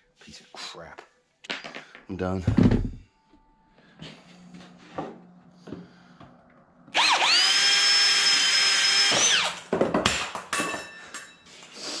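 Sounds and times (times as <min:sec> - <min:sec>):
power drill boring through wood: 0:06.9 - 0:09.6.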